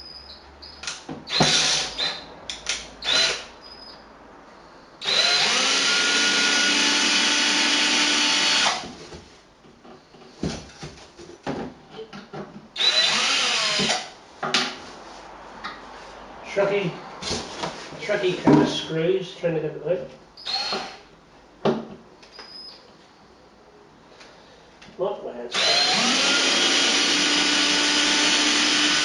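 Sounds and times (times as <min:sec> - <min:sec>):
power drill driving screws: 0:00.9 - 0:02.2, 0:03.0 - 0:03.5, 0:05.0 - 0:08.8, 0:12.8 - 0:14.1, 0:20.4 - 0:21.0, 0:25.5 - 0:29.0.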